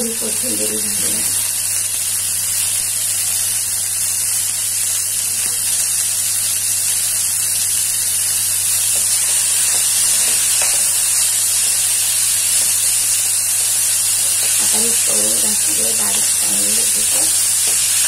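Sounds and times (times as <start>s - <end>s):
vegetables frying hiss: 0.0s - 18.0s.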